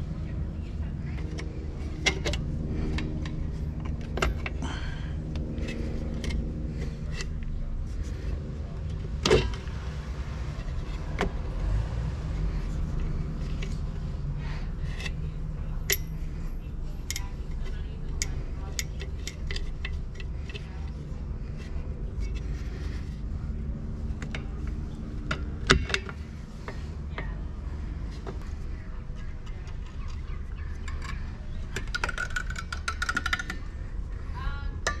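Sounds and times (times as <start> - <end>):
low hum: 0.0 - 35.0
metal parts clicking and clinking: 15.8 - 23.1, 29.3 - 33.6.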